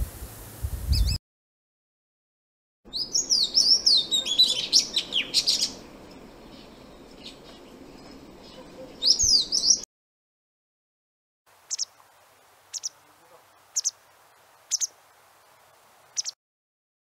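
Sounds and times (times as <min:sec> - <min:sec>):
bird singing whistled notes: 0:00.9 - 0:01.2, 0:02.9 - 0:09.8, 0:11.7 - 0:12.0, 0:12.7 - 0:13.0, 0:13.8 - 0:14.0, 0:14.7 - 0:15.0, 0:16.2 - 0:16.4.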